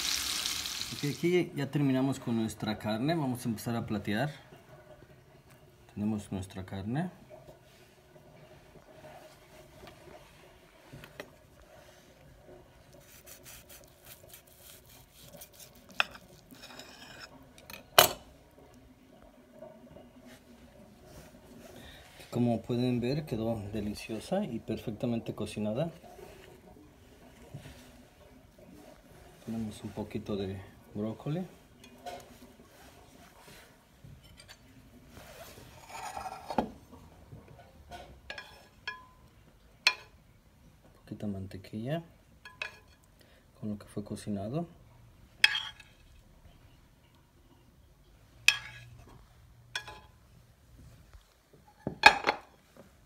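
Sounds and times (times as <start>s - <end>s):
knife sawing and scraping: 13.0s - 17.3s, 35.4s - 36.7s.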